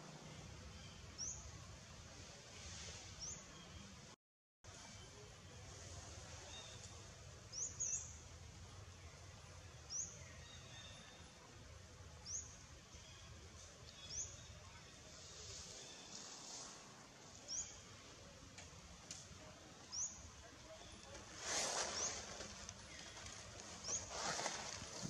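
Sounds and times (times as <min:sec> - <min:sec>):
faint outdoor hiss and rumble: 0:00.0 - 0:25.0.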